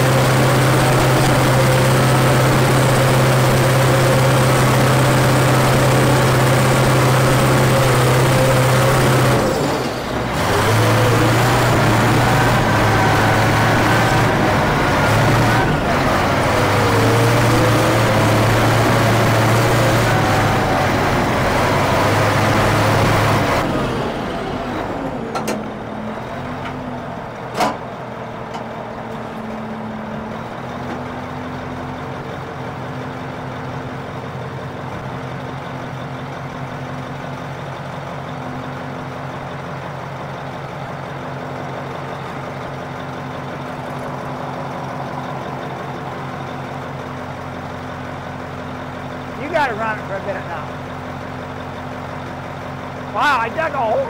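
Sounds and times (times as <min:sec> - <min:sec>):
bulldozer diesel engine: 0:00.0 - 0:54.0.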